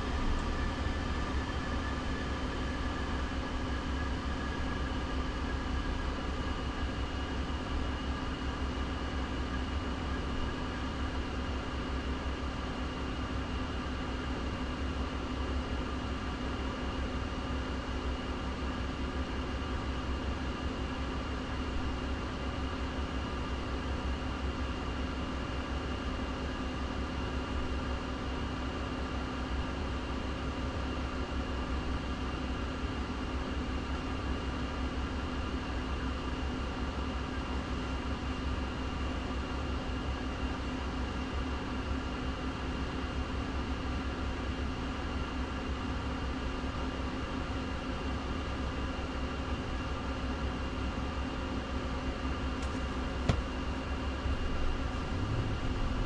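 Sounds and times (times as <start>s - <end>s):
car cabin low rumble: 52.5s - 56.0s.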